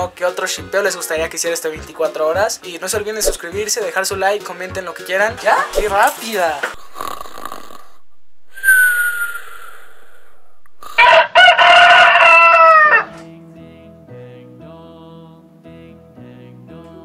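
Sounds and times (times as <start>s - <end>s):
falling whistle: 8.5s - 10.6s
rooster crowing: 10.8s - 13.2s
soft slow music: 12.4s - 17.0s.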